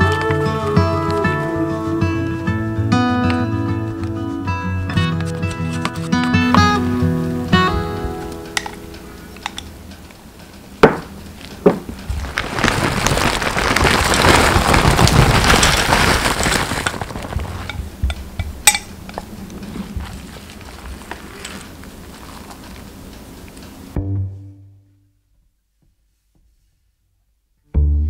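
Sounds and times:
cheese rustling hiss: 0.0 - 24.0.

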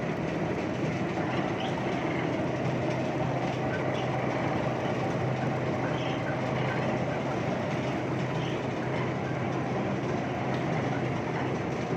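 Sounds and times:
constant low hum: 0.0 - 11.9
mill machinery running: 0.0 - 11.9.

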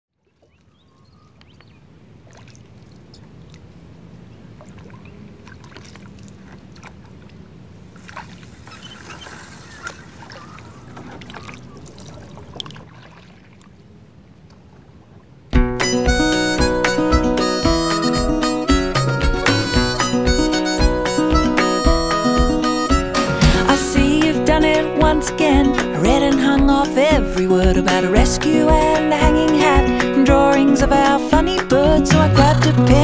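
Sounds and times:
water sloshing and trickling: 0.2 - 15.4.

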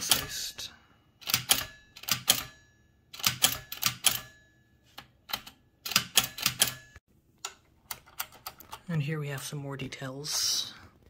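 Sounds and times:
typewriter mechanism clicking: 5.3 - 7.0.

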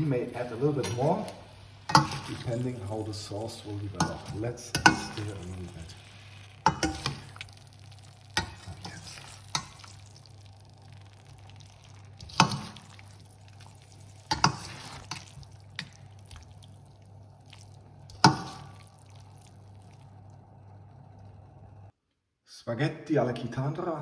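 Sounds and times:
low steady hum: 0.0 - 22.0
metal server scraping pan: 0.1 - 7.5, 8.3 - 10.1, 12.2 - 13.1, 13.7 - 15.9.

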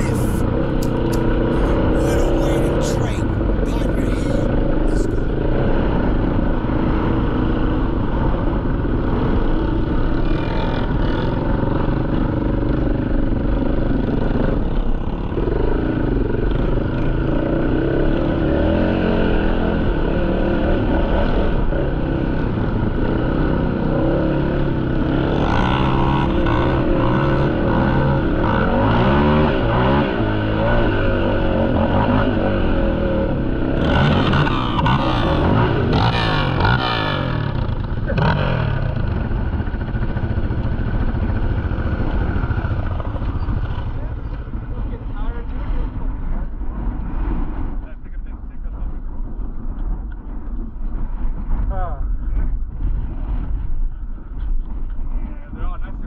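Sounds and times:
atv engine revving: 15.3 - 43.9.

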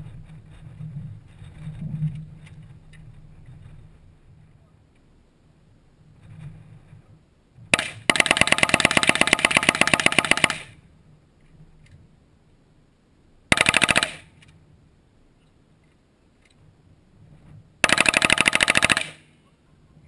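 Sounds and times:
rapid rifle fire: 7.7 - 10.8, 13.5 - 14.4, 17.8 - 19.3.

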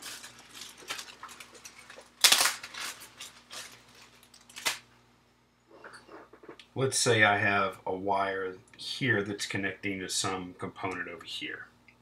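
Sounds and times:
wire handling clicks and rustles: 0.0 - 4.9
faint steady hum: 0.0 - 12.0.

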